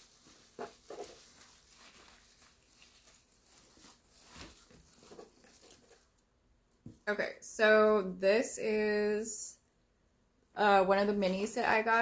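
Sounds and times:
hands rustling shredded paper: 0.0s - 6.2s.

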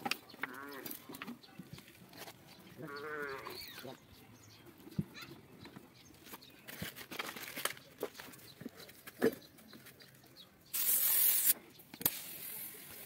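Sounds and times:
compressed air hiss: 10.7s - 13.0s.

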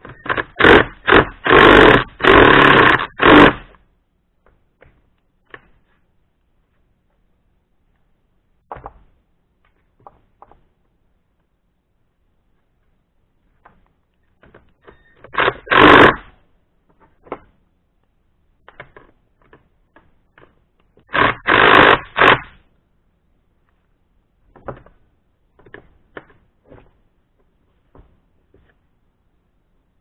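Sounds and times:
impact driver hammering: 0.2s - 3.7s, 15.3s - 16.2s.

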